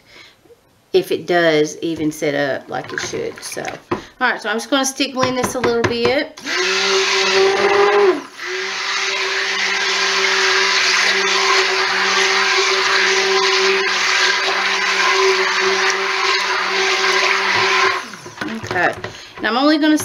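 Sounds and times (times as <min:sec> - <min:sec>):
stick blender motor hum: 0:06.4 - 0:20.0.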